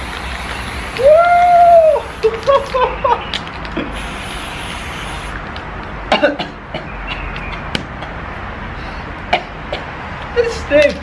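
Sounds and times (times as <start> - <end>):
spray paint can hissing: 0.0 - 5.7.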